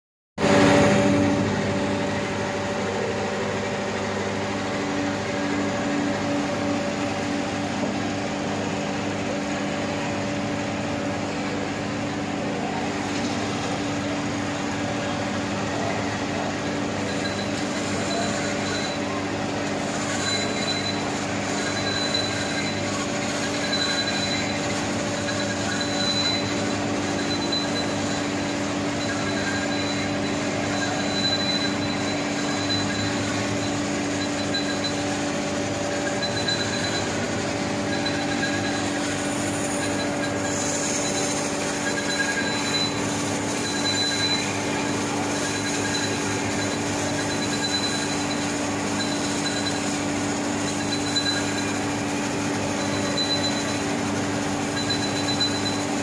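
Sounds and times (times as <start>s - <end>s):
baler mechanical rumble: 0.4s - 55.8s
steady machine hum: 0.4s - 56.0s
faint high squeal: 15.7s - 54.0s, 54.6s - 56.0s.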